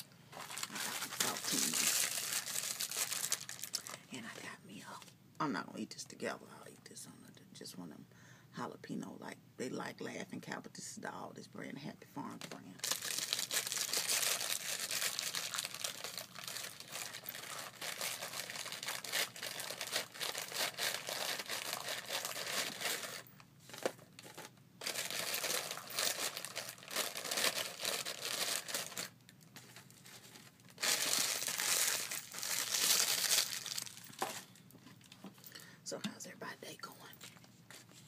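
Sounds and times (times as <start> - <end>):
cracker wrapper crinkling: 0.0 - 4.0, 12.8 - 35.2.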